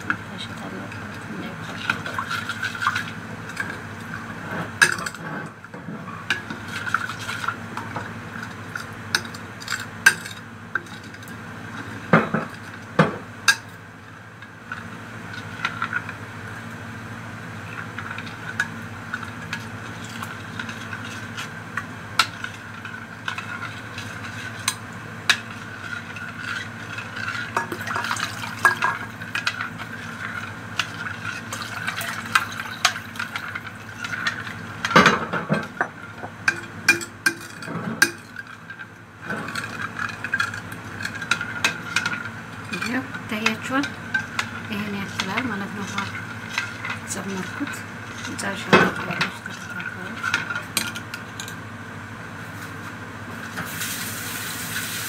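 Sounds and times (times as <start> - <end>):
steady hum: 0.0 - 55.0
spoon stirring liquid: 17.7 - 51.6.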